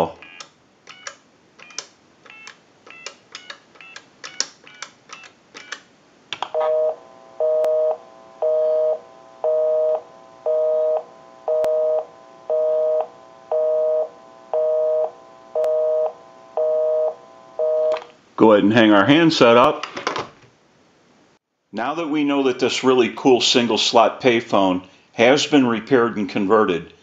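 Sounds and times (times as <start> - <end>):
touch-tone keypad beeps: 0.3 - 5.8
telephone busy signal: 6.5 - 18.0.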